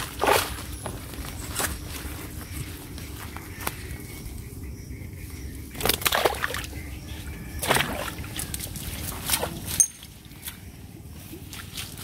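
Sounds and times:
water splashing and sloshing: 0.0 - 1.2, 5.7 - 12.0.

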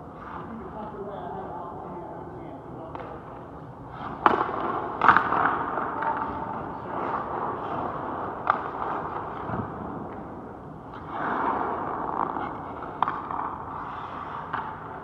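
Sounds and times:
hockey stick hitting puck: 4.0 - 15.0
skate blades scraping ice: 10.9 - 15.0.

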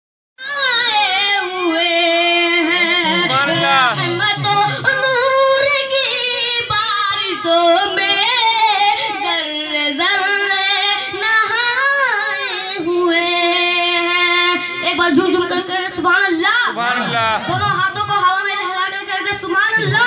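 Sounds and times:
boy singing solo: 16.6 - 17.7.

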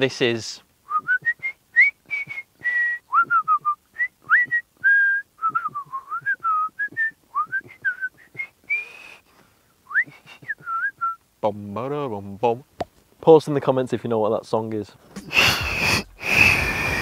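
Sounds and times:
man whistling a tune: 0.9 - 9.3, 9.9 - 11.2.

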